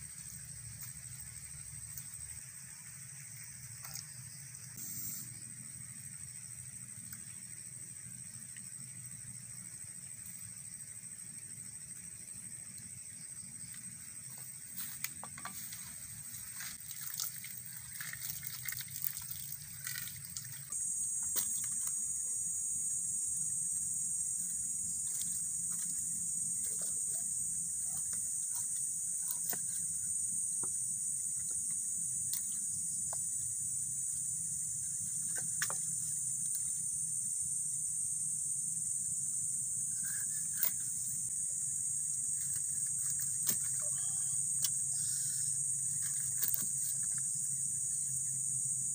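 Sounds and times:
insects droning: 0.0 - 48.9
water splashing in a metal pan: 16.7 - 20.8.

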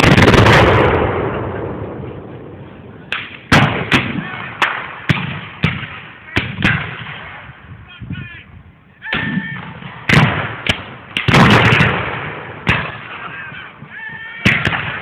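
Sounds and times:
musket shots: 3.1 - 7.4, 9.1 - 13.3, 14.4 - 15.0.

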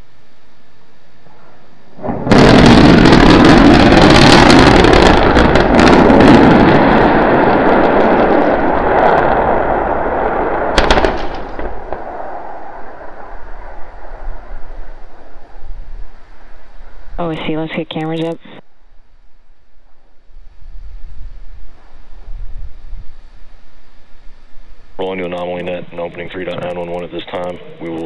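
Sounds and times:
rocket engines crackling rumble: 1.1 - 28.0
explosion blast: 1.2 - 17.9.

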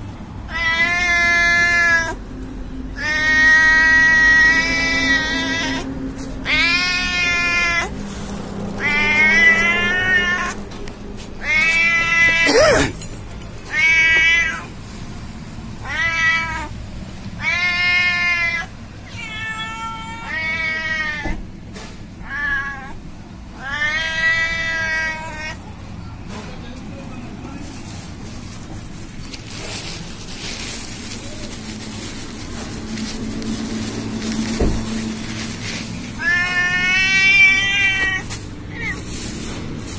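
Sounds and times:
cat meowing: 0.5 - 2.2, 3.0 - 8.0, 8.8 - 10.7, 11.4 - 13.0, 13.7 - 14.7, 15.8 - 16.8, 17.4 - 21.4, 22.2 - 25.6, 36.1 - 39.1.

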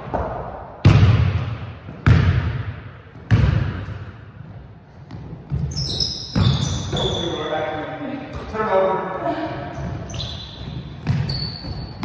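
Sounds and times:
basketball bouncing on hardwood: 0.8 - 2.6, 3.2 - 3.8, 10.6 - 11.8.

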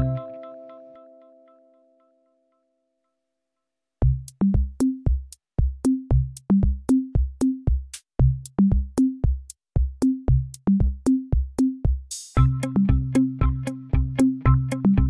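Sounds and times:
electronic music with drum-machine beat: 4.0 - 15.0.

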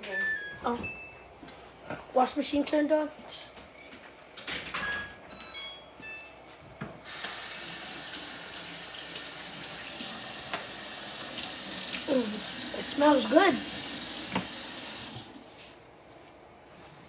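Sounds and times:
water rushing into washing machine: 7.0 - 15.5.

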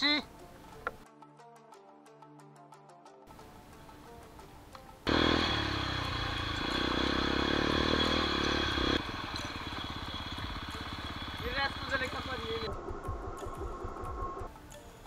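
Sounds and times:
motorcycle engine running: 5.1 - 14.5.

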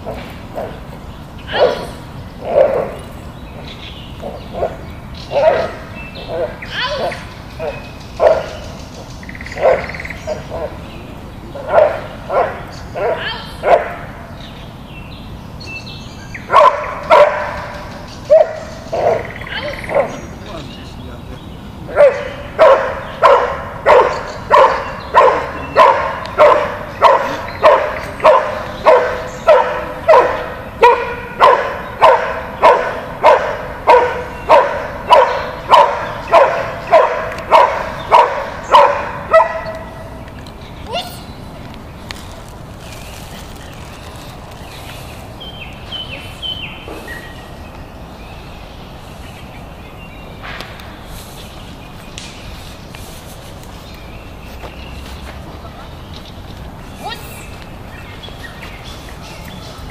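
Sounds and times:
bird chirping: 0.0 - 59.9
dog barking: 1.5 - 3.0, 4.6 - 8.6, 9.6 - 10.8, 11.6 - 14.1, 16.5 - 20.2, 21.9 - 40.1.

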